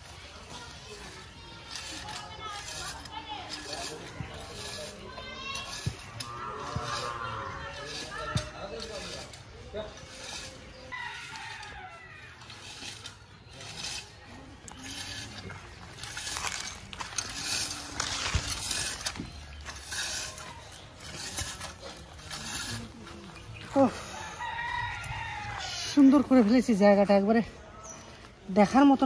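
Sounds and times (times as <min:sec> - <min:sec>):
cultivator scraping soil: 0:00.0 - 0:24.5.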